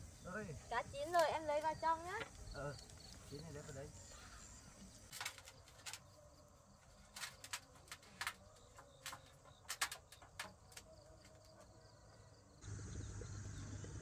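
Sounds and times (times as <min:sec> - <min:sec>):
bamboo sticks clacking together: 0:04.8 - 0:11.8.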